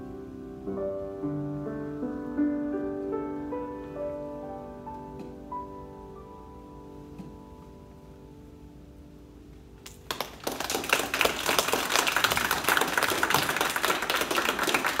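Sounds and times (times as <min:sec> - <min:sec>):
piano chord: 0:00.0 - 0:09.8
audience applause: 0:10.0 - 0:15.0.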